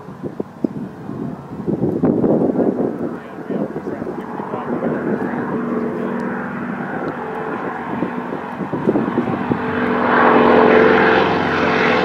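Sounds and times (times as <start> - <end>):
propeller plane engine drone: 0.0 - 12.0.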